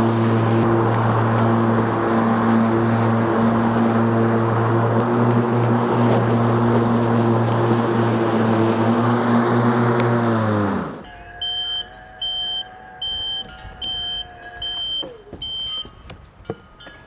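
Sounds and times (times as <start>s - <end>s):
electric lawn mower motor whine: 0.0s - 15.9s
short high beeps: 11.0s - 16.0s.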